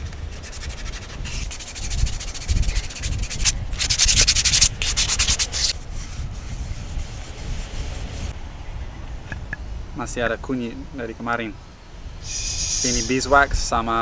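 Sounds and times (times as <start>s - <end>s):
rapid scraping strokes: 0.0s - 8.4s.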